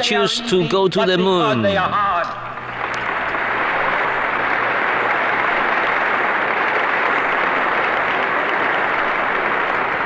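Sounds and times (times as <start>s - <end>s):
large crowd applauding: 2.5s - 10.0s.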